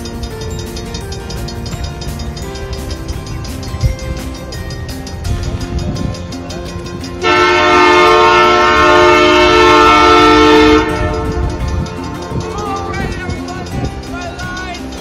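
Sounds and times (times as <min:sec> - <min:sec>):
train horn: 0:07.2 - 0:11.6.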